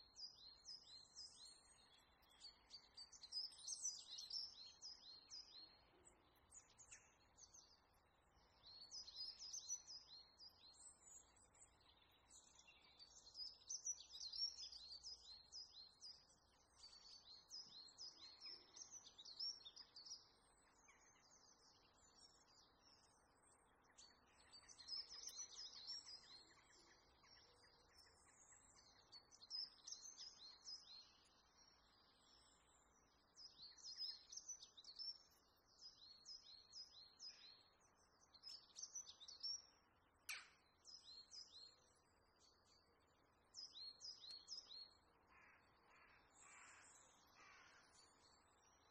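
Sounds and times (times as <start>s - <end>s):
small birds chirping: 0.0s - 48.9s.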